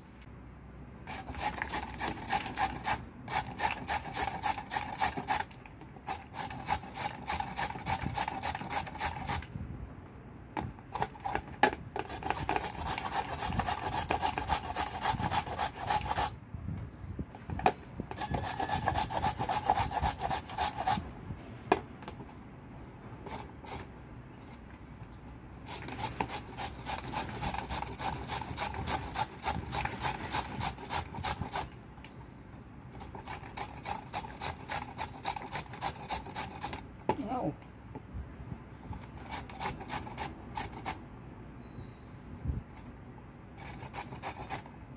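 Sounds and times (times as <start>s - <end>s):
grater rasping: 1.1s - 9.4s, 12.0s - 16.4s, 18.2s - 21.0s, 25.6s - 31.7s, 33.0s - 36.8s, 39.0s - 41.0s, 43.6s - 44.7s.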